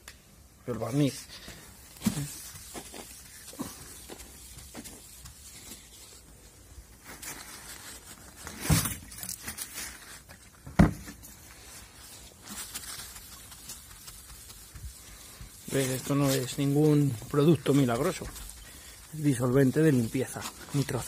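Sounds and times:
paper towel rubbing on car panel: 13.2s - 18.6s.

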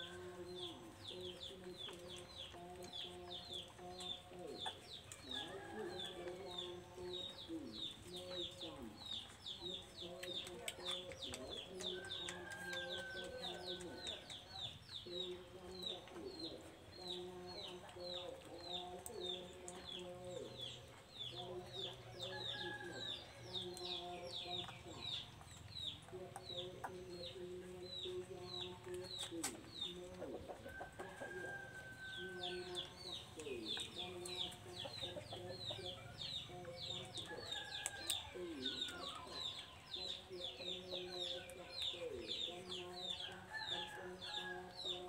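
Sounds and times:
chicks peeping: 0.0s - 45.0s.

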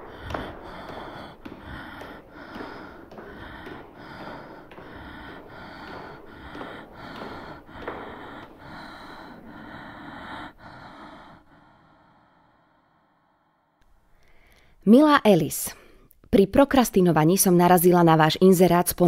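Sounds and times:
heavy rhythmic breathing: 0.0s - 14.8s.

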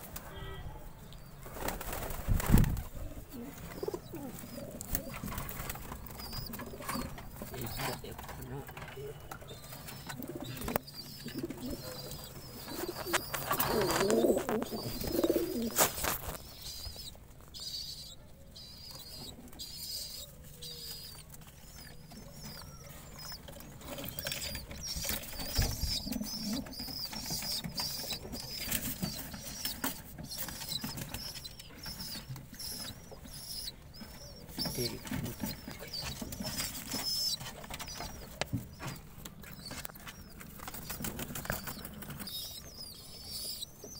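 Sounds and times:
pigeon cooing low: 3.0s - 5.2s, 10.0s - 15.8s
clicks and rustles: 3.4s - 17.9s, 18.9s - 43.9s.

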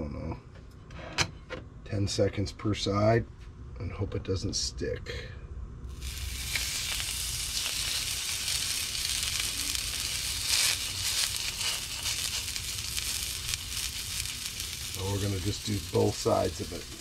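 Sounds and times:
fish sizzling in a skillet: 5.9s - 17.0s.

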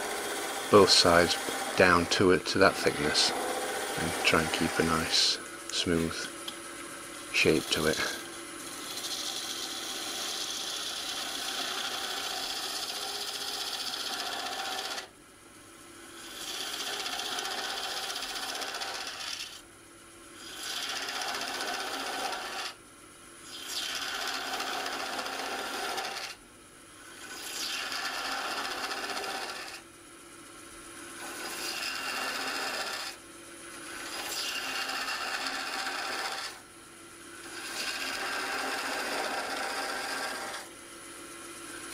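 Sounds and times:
gouge cutting wood on lathe: 0.0s - 5.3s, 7.4s - 15.1s, 16.2s - 19.6s, 20.4s - 22.8s, 23.5s - 26.4s, 27.1s - 29.8s, 31.2s - 33.2s, 33.9s - 36.6s, 37.4s - 40.7s.

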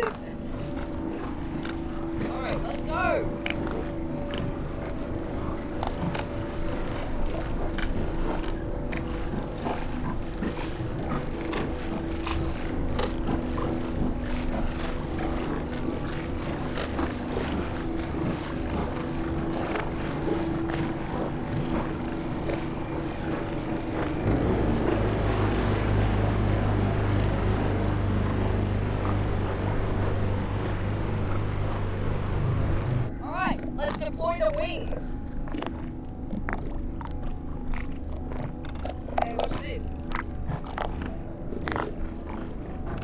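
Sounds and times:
deep engine drone: 0.0s - 43.0s
motorboat engines humming: 0.0s - 43.0s.

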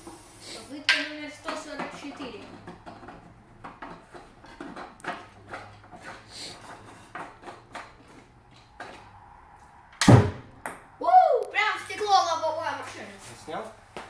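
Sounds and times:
brief hiss: 0.0s - 0.8s.

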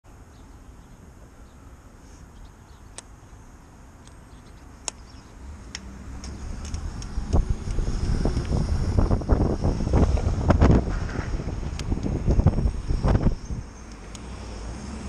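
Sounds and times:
distant traffic rumble: 0.1s - 15.0s
sharp small clicks: 2.9s - 3.2s, 4.0s - 8.7s, 11.6s - 14.4s.

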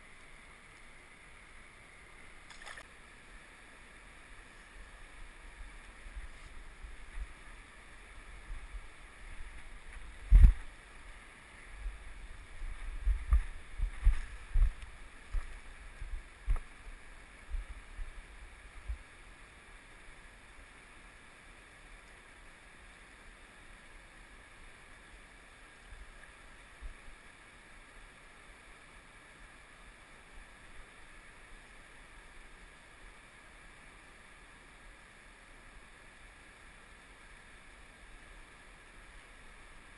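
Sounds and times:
low thumps on microphone: 10.2s - 10.7s, 12.7s - 16.7s.

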